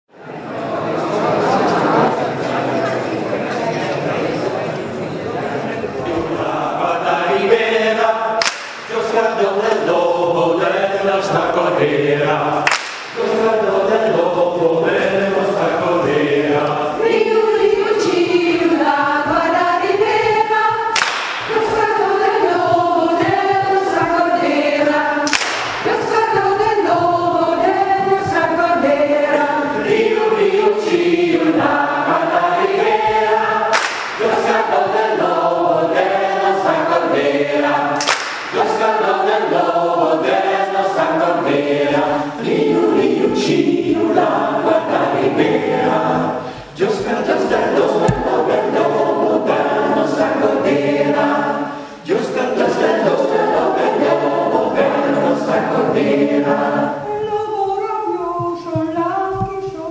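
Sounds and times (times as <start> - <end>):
mixed choir singing: 0.3 - 59.9.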